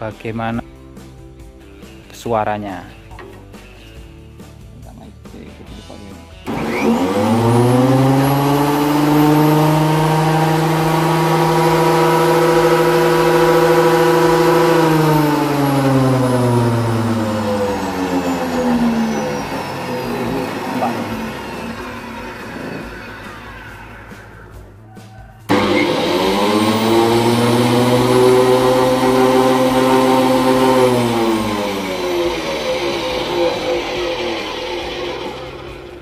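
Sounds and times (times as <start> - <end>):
thickness planer motor whining: 6.4 - 24.5, 25.5 - 36.0.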